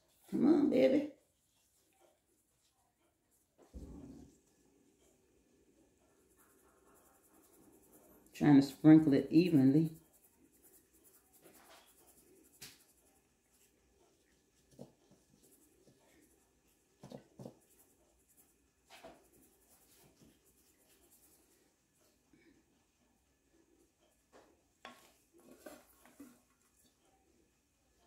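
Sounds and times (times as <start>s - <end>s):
faint scratchy rustles: 24.4s - 27.1s.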